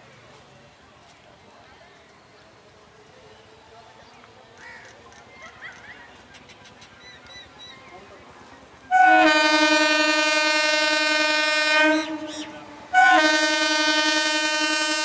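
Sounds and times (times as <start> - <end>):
train horn blasts: 8.9 - 15.0.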